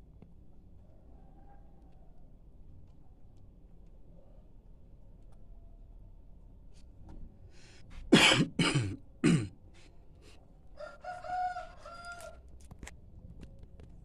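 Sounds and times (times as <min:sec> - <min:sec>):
rooster calling harshly: 0:10.8 - 0:12.4.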